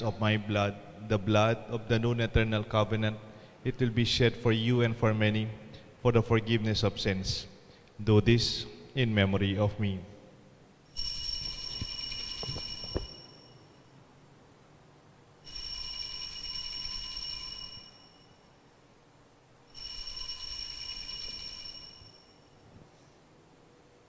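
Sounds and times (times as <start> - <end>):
altar bells ringing: 10.9 - 13.8, 15.5 - 18.5, 19.7 - 22.6.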